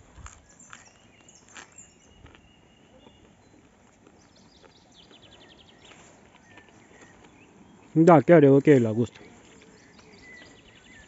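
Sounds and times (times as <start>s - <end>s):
distant birds calling: 0.0s - 11.0s
bird trill: 8.8s - 11.0s.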